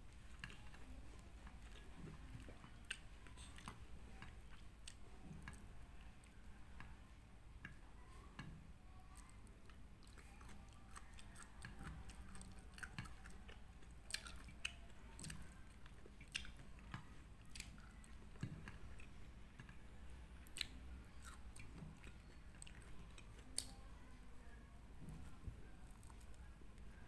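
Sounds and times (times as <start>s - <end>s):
close chewing of rice roll: 0.0s - 7.0s, 7.7s - 23.8s.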